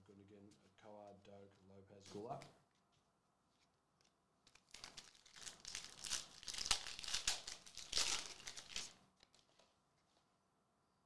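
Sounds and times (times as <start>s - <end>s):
foil wrapper tearing and crinkling: 4.5s - 9.6s.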